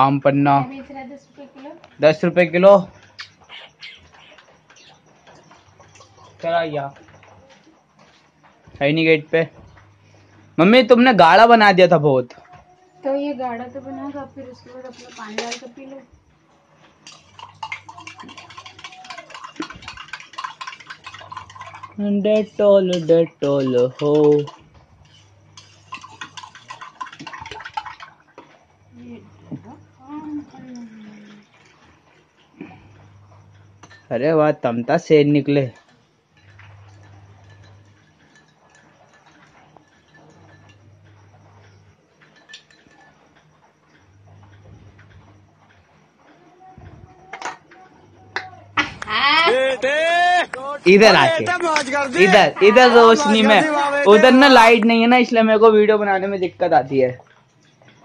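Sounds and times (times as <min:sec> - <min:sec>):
metal spoon clinking in tumbler: 0:14.8 - 0:15.8, 0:17.0 - 0:27.9, 0:35.7 - 0:41.5, 0:42.2 - 0:43.5.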